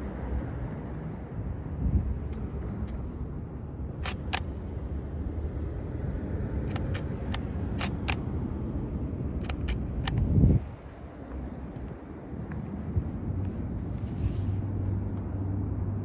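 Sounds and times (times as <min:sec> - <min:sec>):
low outdoor rumble: 0:00.0 - 0:16.0
camera shutter clicks: 0:04.0 - 0:04.6, 0:06.7 - 0:08.3, 0:09.4 - 0:10.3.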